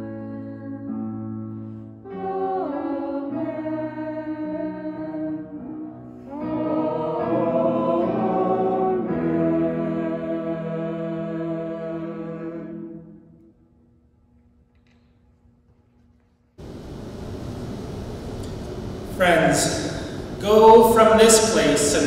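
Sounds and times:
group of voices singing a hymn: 2.0s - 13.4s.

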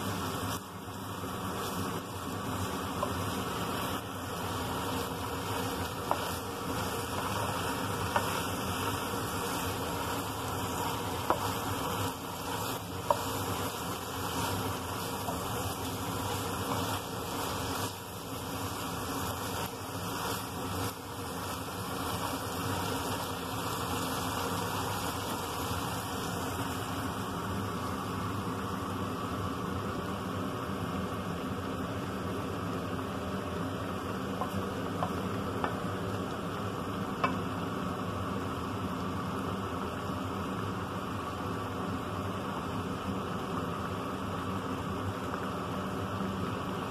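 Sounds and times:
spatula striking frying pan: 2.9s - 3.3s, 5.8s - 10.2s, 10.8s - 18.0s, 37.2s - 37.4s.

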